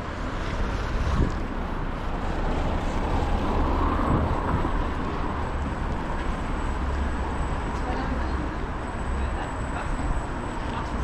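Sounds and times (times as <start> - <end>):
wind rumble on microphone: 0.0 - 6.2.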